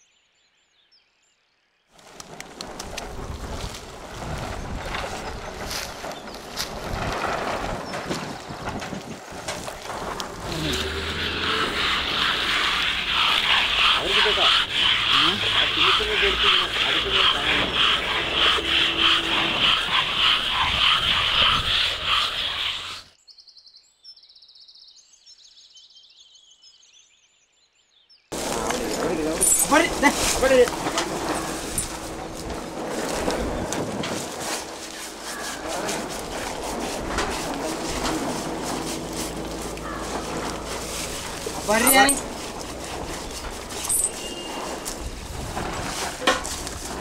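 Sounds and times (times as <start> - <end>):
hose water splashing: 2.0 - 23.2, 28.3 - 47.0
hand scrubbing wet skin: 10.4 - 23.1, 34.1 - 45.2
small birds chirping: 39.3 - 45.3.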